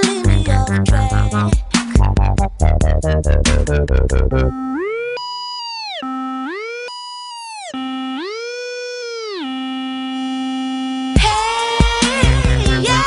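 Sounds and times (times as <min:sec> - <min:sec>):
electronic beat: 0:00.0 - 0:13.0
synth tone sliding up and down: 0:02.2 - 0:11.2.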